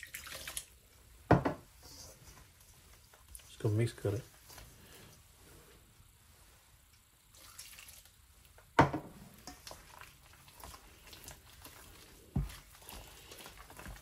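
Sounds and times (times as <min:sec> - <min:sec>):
batter squishing in bowl: 0:07.0 - 0:14.0.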